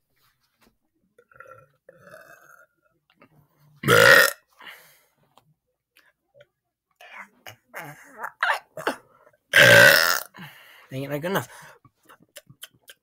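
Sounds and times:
boy burping: 1.2s - 2.8s, 3.8s - 4.4s, 7.4s - 10.4s
faint mouth sounds: 12.0s - 13.0s.

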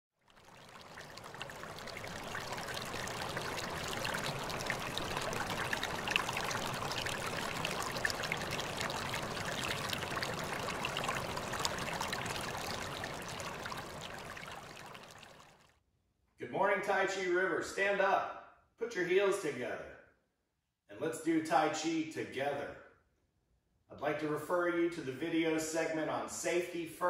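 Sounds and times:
small stream babbling: 0.2s - 15.7s.

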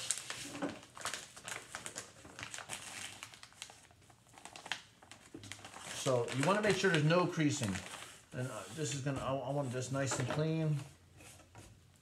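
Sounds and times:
plastic bag crinkling: 0.0s - 8.3s.

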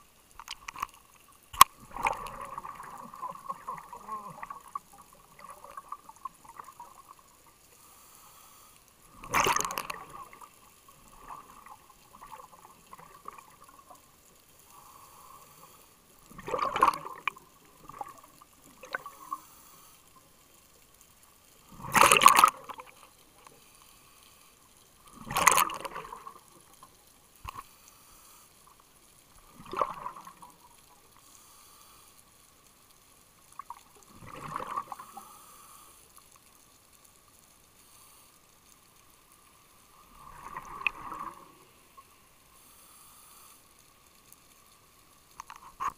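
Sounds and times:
faint steady tone: 0.0s - 45.9s
underwater exhaled bubbles: 0.4s - 7.6s, 9.0s - 15.5s, 16.2s - 20.2s, 21.6s - 23.7s, 25.0s - 27.7s, 29.3s - 31.2s, 33.5s - 35.5s, 39.8s - 42.2s.

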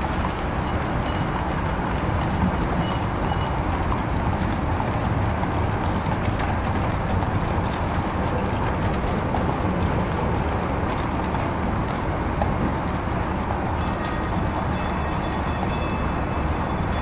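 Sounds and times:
horses' hooves clip-clop: 0.0s - 17.0s
streetcar rumbling on rails: 0.0s - 17.0s.

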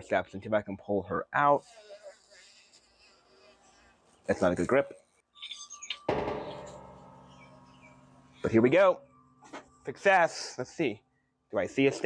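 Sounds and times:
struck music chord ringing: 6.0s - 11.5s.

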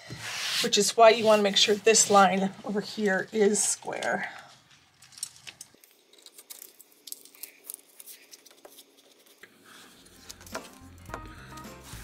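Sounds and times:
paper rustling: 6.3s - 11.0s.

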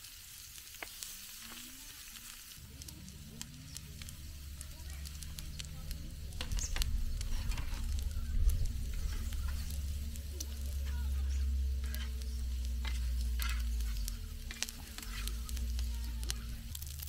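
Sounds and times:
meat and cheese sizzling in a pan: 0.0s - 17.0s
low steady rumble: 2.6s - 17.0s
metal spatula scraping a pan: 6.4s - 10.0s, 10.6s - 15.6s.

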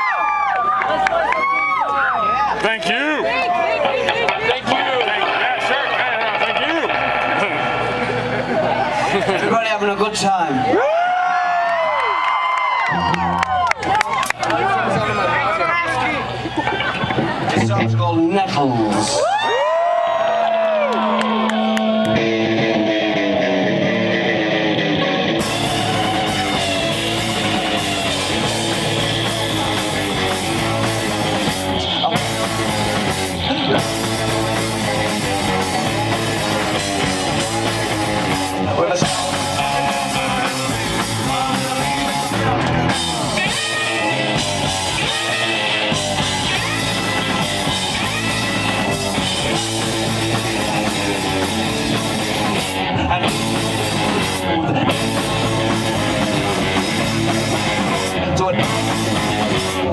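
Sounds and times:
electric guitars: 0.0s - 59.9s
drum kit: 21.3s - 59.9s.

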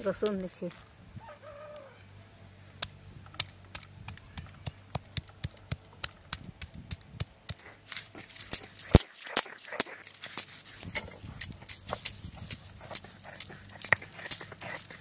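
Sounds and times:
stone grinding on stone slab: 7.5s - 15.0s.

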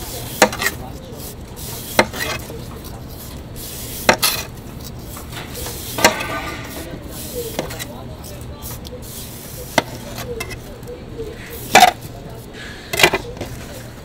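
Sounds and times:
knife shaving melon rind: 0.0s - 12.8s
knife blade scraping rasp: 0.3s - 10.7s.

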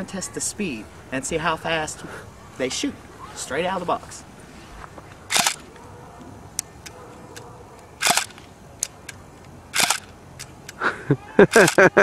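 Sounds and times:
airsoft pistol crack: 5.3s - 5.8s, 6.6s - 9.2s, 9.8s - 10.8s.

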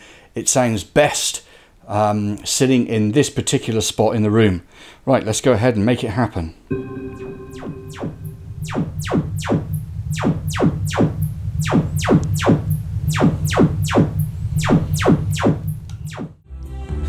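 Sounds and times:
steady test tones: 6.7s - 16.2s
rapid falling tone sweeps: 6.7s - 16.4s
steady low hum: 6.7s - 16.4s.

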